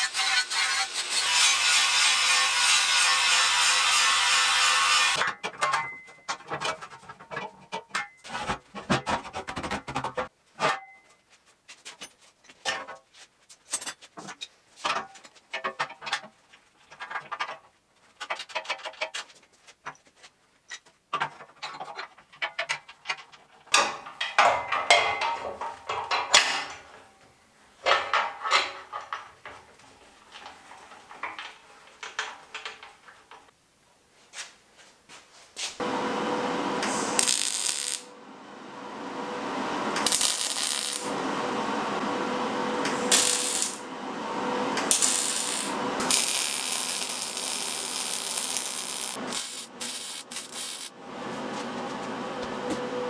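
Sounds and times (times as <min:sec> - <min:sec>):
angle grinder grinding steel: 0:00.0 - 0:05.2, 0:36.8 - 0:38.1, 0:39.9 - 0:41.2, 0:42.4 - 0:51.0
metal rubbing and scraping: 0:44.8 - 0:51.0.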